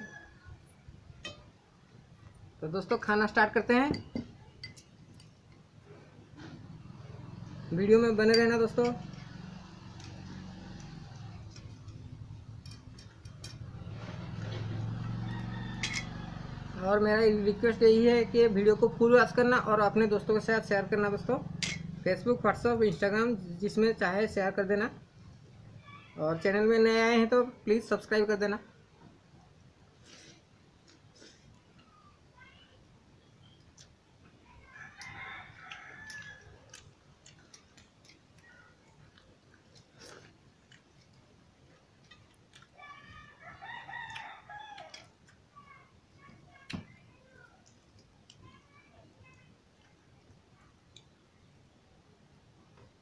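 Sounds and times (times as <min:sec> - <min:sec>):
distant rooster crowing: 0:00.0 - 0:00.6, 0:14.7 - 0:16.8, 0:34.6 - 0:36.6, 0:43.2 - 0:45.1.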